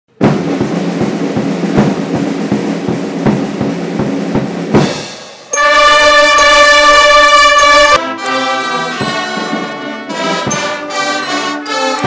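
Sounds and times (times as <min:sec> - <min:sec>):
snare drum roll: 0:00.1 - 0:08.0, 0:08.6 - 0:12.0
steady drum beats: 0:00.1 - 0:12.0
brass held chord: 0:05.5 - 0:12.0.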